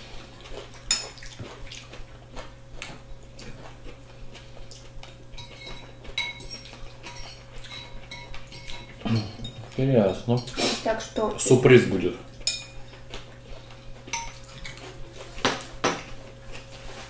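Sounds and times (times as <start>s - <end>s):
faint steady hum: 0.0s - 17.0s
cutlery scraping on plates: 5.4s - 10.8s, 12.4s - 13.1s, 14.1s - 16.7s.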